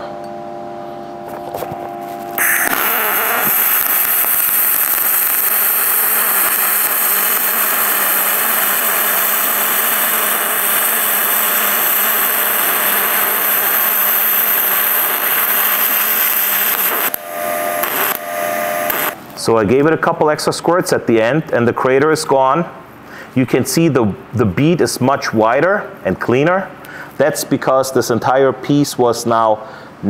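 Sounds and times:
welding arc hissing: 2.1 - 19.2.

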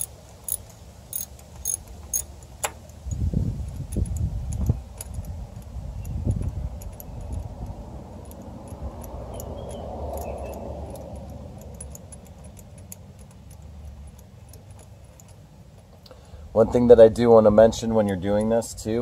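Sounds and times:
socket ratchet clicking: 0.0 - 16.1.

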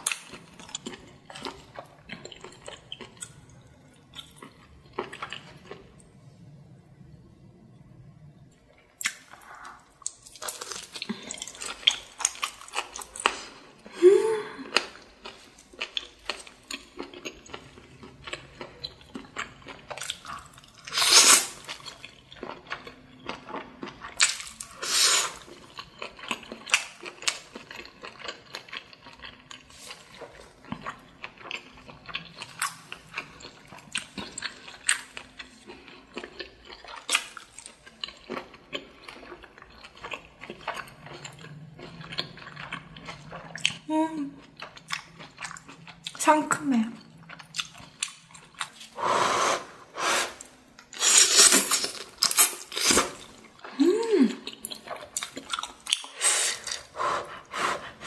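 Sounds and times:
wet chewing and mouth smacks: 9.0 - 13.4, 21.6 - 43.8, 47.0 - 49.0, 54.4 - 58.0
noodle slurps: 48.9 - 51.9.

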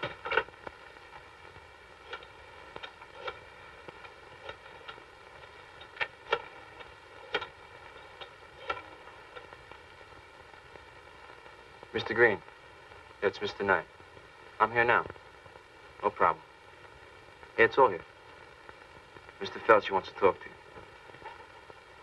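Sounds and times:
steady hiss and hum: 0.0 - 22.0.

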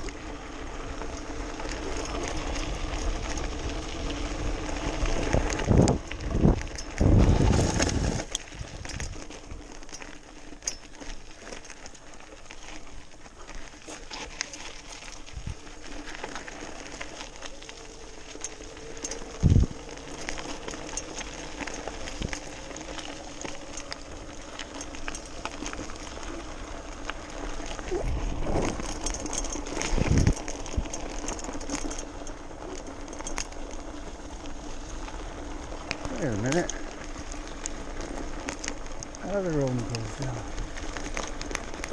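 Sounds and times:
tyres crunching on gravel: 0.0 - 41.9
faint motor hum: 11.2 - 41.9.

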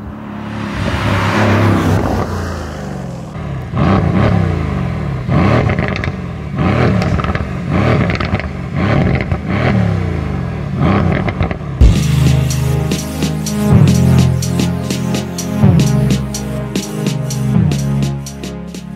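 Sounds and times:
car engine passing at speed: 0.0 - 5.9
car engine revving in blips: 3.4 - 18.9
exhaust cracks: 5.4 - 9.5.

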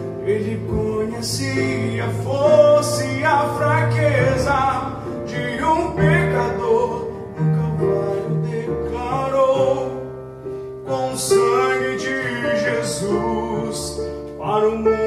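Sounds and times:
man singing: 0.0 - 10.2, 10.8 - 15.0
electric keyboard ballad: 0.0 - 15.0.

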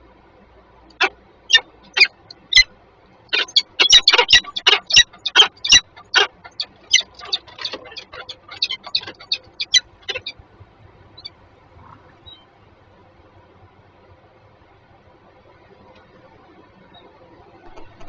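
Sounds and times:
falcons calling: 0.9 - 2.7, 3.3 - 12.5.

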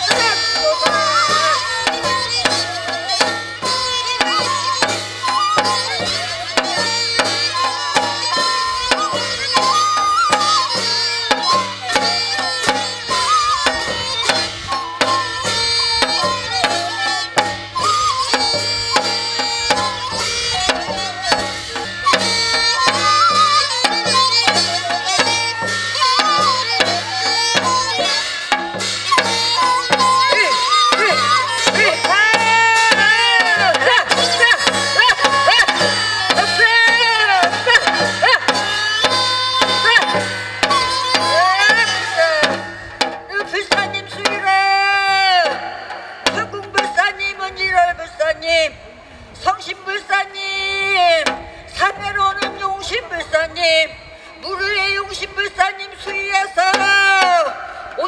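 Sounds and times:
wavering melodic instrument: 0.0 - 45.5
hand drum beating fast rhythm: 0.0 - 47.1.

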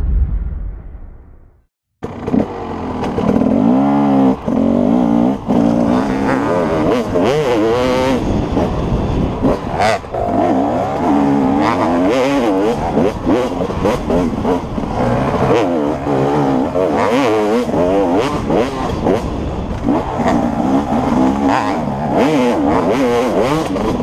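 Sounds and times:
rumble: 0.0 - 1.7
dirt bike engine revving: 2.0 - 24.0.

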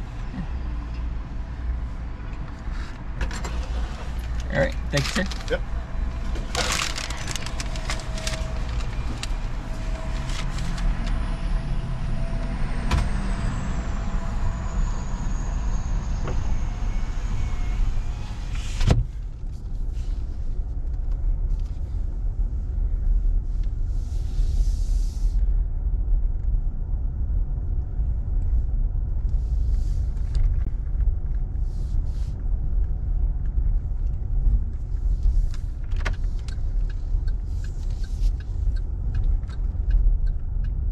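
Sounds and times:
car engine running: 0.0 - 40.9
clicks and rustles: 6.4 - 9.4.

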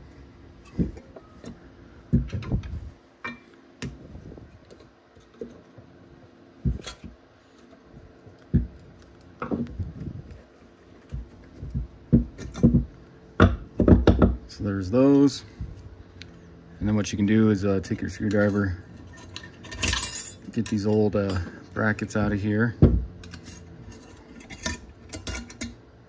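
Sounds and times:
screwdriver scraping and knocking metal: 23.2 - 25.7.

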